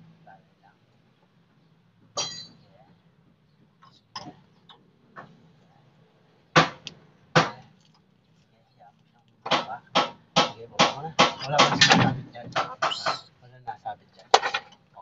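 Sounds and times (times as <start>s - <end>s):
hand tools clanking on steel: 2.1s - 2.7s, 9.4s - 13.3s, 14.2s - 15.0s.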